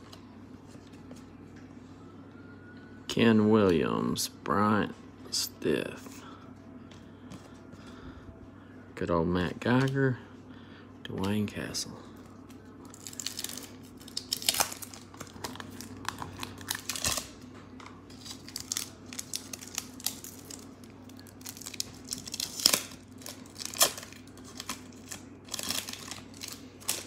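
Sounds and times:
wrapper crinkling: 12.8s - 17.4s, 18.1s - 27.0s.

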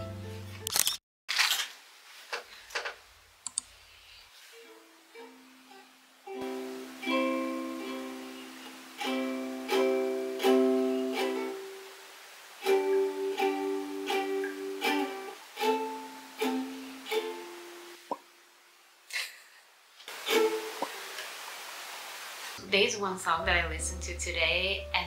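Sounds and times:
ukulele chords strummed: 0.0s - 0.6s, 4.7s - 11.9s, 12.6s - 18.0s, 20.1s - 21.0s, 22.6s - 25.0s.

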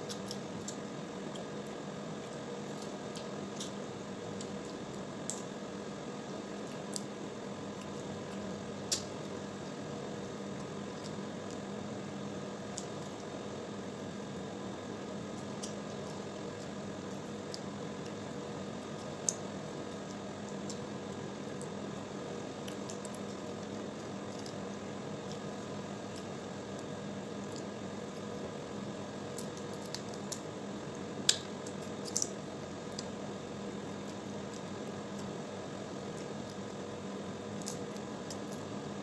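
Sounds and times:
background hum and hiss: 0.0s - 39.0s
crab shell cracking: 29.2s - 30.5s, 31.2s - 33.2s, 37.5s - 38.7s.

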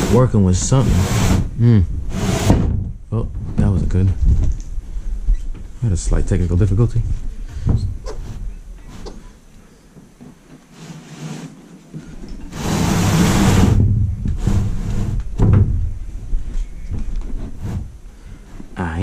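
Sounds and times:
board scraping slide: 0.0s - 1.5s, 2.1s - 2.6s, 10.7s - 11.8s, 12.4s - 15.3s
boards knocking: 12.4s - 16.0s.

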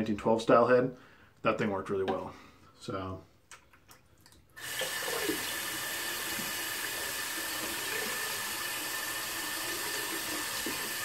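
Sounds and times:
razor rinsed under water: 4.3s - 11.0s
tap running into sink: 6.2s - 6.9s.

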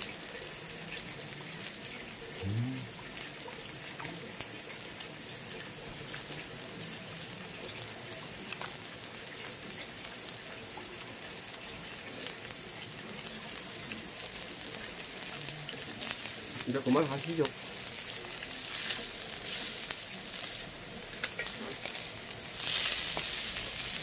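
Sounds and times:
meat sizzling on grill pan: 0.0s - 24.0s
rain falling: 10.4s - 24.0s.

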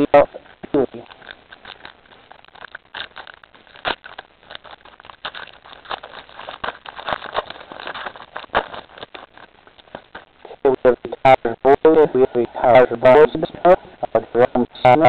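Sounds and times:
foil wrappers crinkling: 0.0s - 11.3s.

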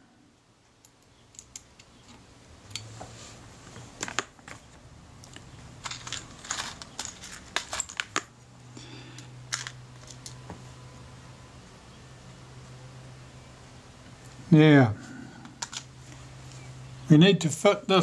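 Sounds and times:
tweezers clicking on metal parts: 0.8s - 2.0s.

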